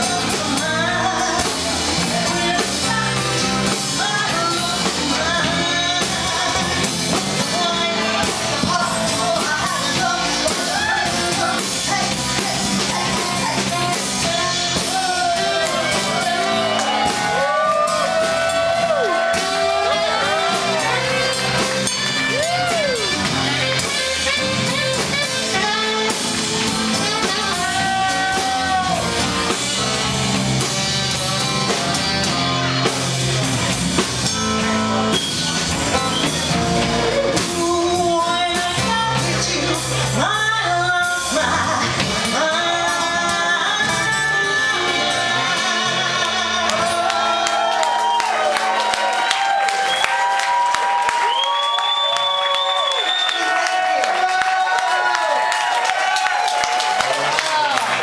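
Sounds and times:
woman singing: 0.0s - 18.4s, 22.3s - 29.0s, 37.3s - 47.7s
live band playing: 0.0s - 58.0s
saxophone: 11.8s - 30.7s.

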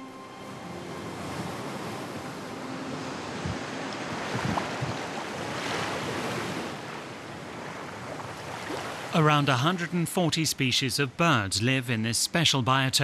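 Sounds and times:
waves washing up a beach: 0.0s - 12.5s
wind thumps on microphone: 3.4s - 5.2s.

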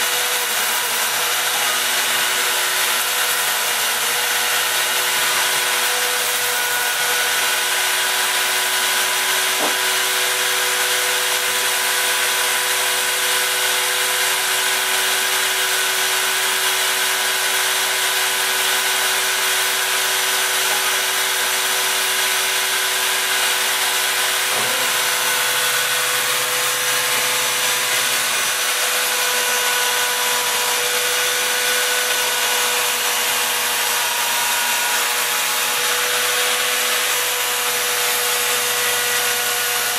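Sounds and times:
router spindle whine and hiss: 8.4s - 10.8s.

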